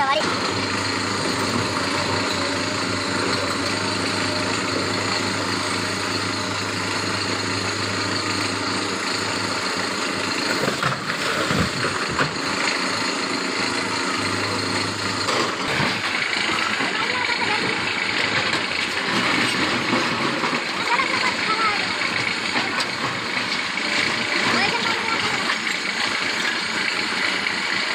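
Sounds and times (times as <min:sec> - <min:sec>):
excavator diesel engine running: 0:00.0 - 0:27.9.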